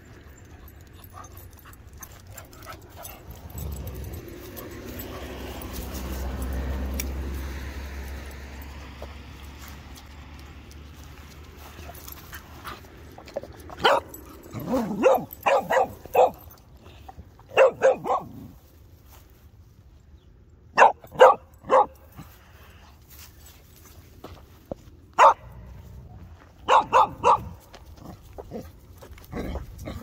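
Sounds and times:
dog barking: 13.8s - 16.4s, 17.5s - 18.6s, 20.8s - 22.1s, 25.2s - 25.5s, 26.6s - 27.6s.

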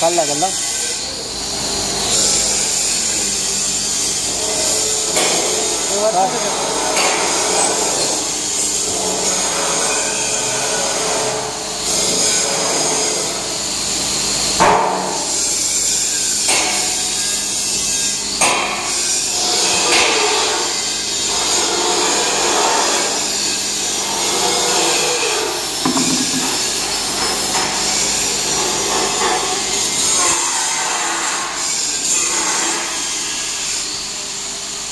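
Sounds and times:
loud knocks: 25.8s - 26.8s.

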